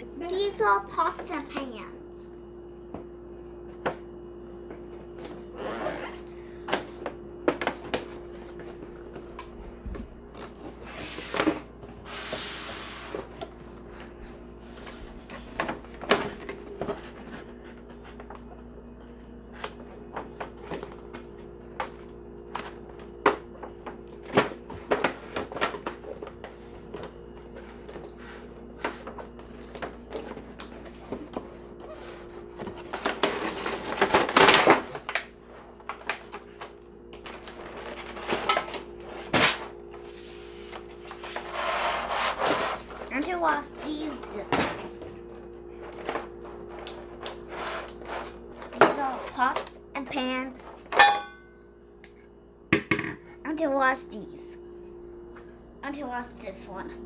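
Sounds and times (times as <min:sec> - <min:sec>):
rustling scrape: 0:10.8 - 0:13.3, 0:40.0 - 0:43.0, 0:47.4 - 0:48.3
metal pots clattering: 0:50.9 - 0:51.5.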